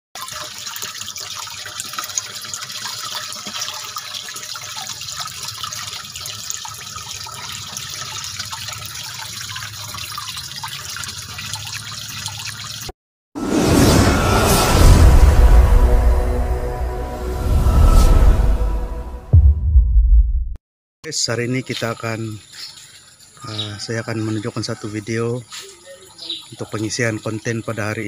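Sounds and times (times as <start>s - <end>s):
small drips and splashes: 0.2s - 12.9s, 21.5s - 27.8s
water trickling into pond: 0.2s - 12.9s, 21.1s - 28.0s.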